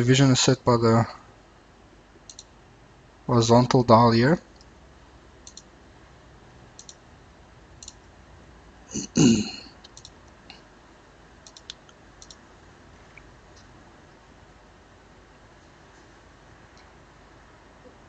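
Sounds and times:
computer mouse clicks: 2.3 - 2.5, 5.4 - 5.7, 6.8 - 7.0, 7.8 - 8.0, 9.8 - 10.2, 11.4 - 12.4.

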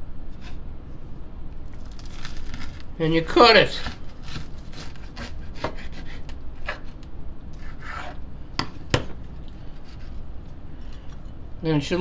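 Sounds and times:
knife cutting through sandwich: 3.8 - 7.0, 7.6 - 8.2
knife scraping on cutting board: 3.8 - 8.2, 9.7 - 10.2.

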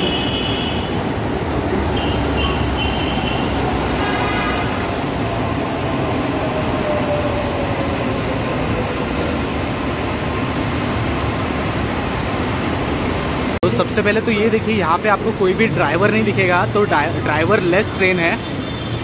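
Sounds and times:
train slowing to a stop: 4.8 - 13.5.

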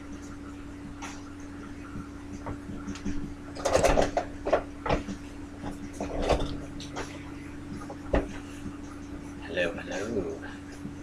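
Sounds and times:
low electrical hum: 0.0 - 11.0
knocks and rustles near microphone: 2.4 - 8.8.

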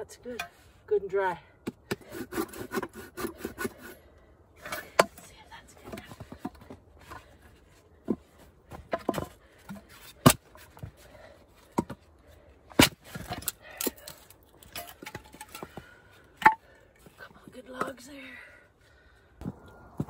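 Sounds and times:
objects knocking and clattering: 8.0 - 10.4, 13.2 - 16.7.

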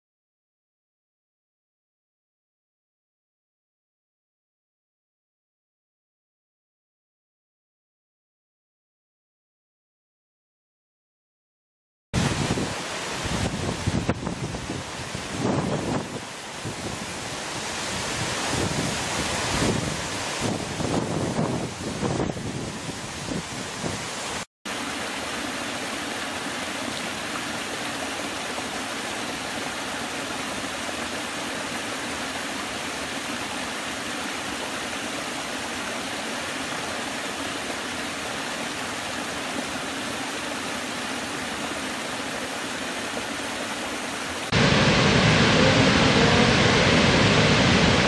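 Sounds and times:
deep waterfall rush: 12.2 - 48.0
stream rushing over rocks: 12.2 - 48.0
waterfall with wind on microphone: 12.2 - 48.0.

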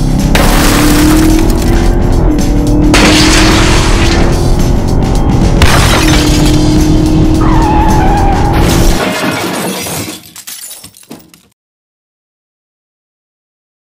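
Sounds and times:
music: 0.0 - 9.1
glass shattering: 2.9 - 4.2, 5.6 - 6.8, 8.6 - 11.5
tyre screech: 7.4 - 8.6.

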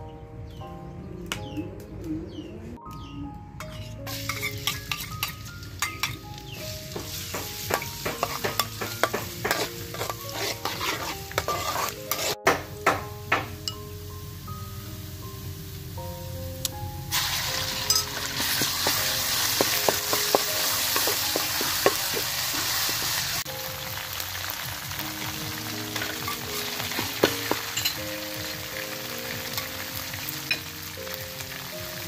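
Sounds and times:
metal spatula scraping a wok: 3.6 - 5.5, 7.5 - 12.4, 17.2 - 23.4
paste sizzling in oil: 4.0 - 12.4, 17.1 - 32.0.

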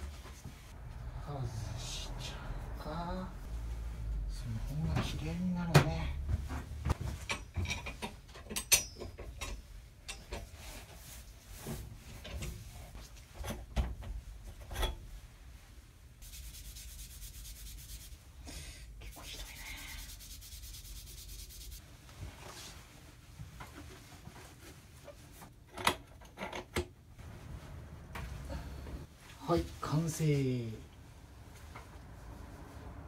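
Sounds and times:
metal clinking and knocking: 7.0 - 10.6.

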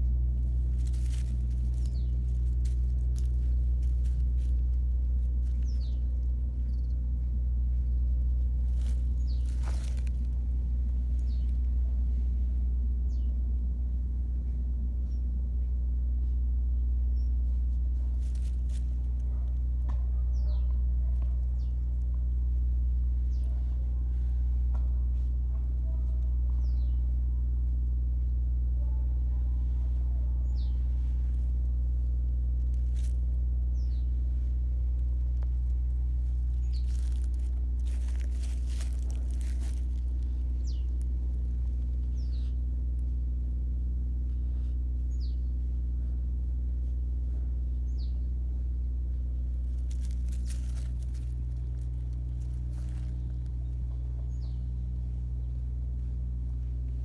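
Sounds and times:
rustling: 0.0 - 6.7, 7.7 - 12.4, 17.5 - 19.6, 30.7 - 43.2, 49.4 - 54.5
low hum: 0.0 - 57.0
bird chirping: 1.8 - 2.3, 5.6 - 7.1, 9.1 - 9.9, 11.2 - 11.6, 13.1 - 13.4, 36.5 - 37.1, 40.6 - 41.0, 42.1 - 42.6, 45.1 - 45.5, 53.1 - 55.6.

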